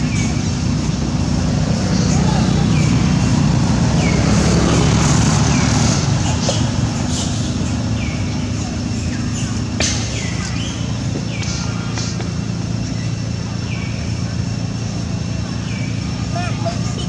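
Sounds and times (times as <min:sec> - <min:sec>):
low engine-like hum: 0:00.0 - 0:17.0.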